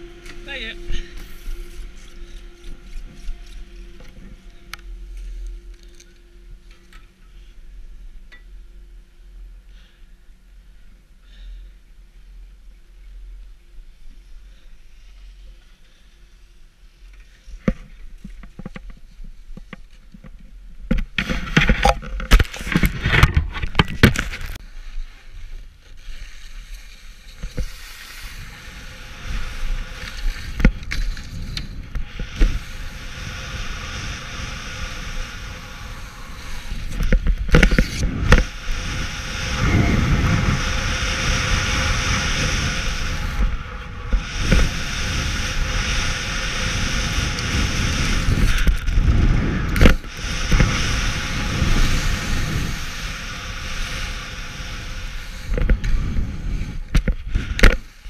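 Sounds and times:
skis sliding on snow: 0.0 - 6.7, 21.1 - 58.0
wind rushing over microphone: 27.4 - 58.0.

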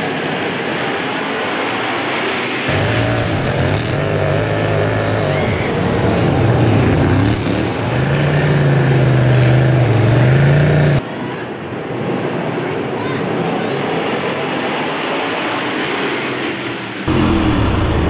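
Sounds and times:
lawn mower engine: 0.6 - 11.0.

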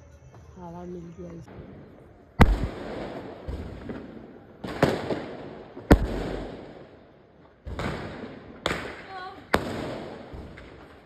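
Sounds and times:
fireworks exploding: 1.3 - 11.0.

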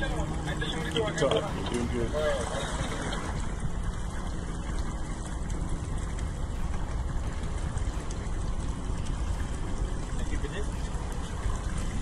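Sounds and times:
outboard motor running: 0.0 - 12.0
water splashing along hull: 0.0 - 12.0.

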